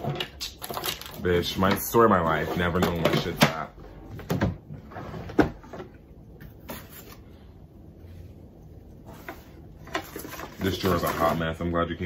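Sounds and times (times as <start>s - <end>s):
rummaging in a drawer: 0.0s - 5.9s, 9.1s - 11.6s.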